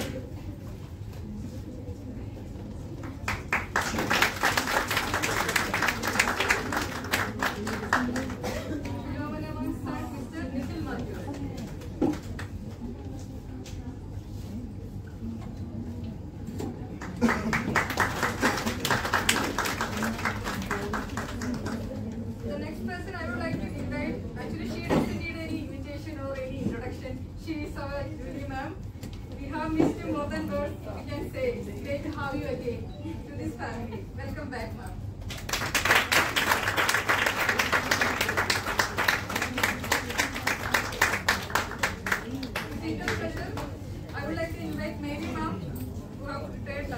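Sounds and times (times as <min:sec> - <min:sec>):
small audience clapping: 0:03.0 - 0:09.1, 0:16.8 - 0:22.2, 0:35.2 - 0:43.9.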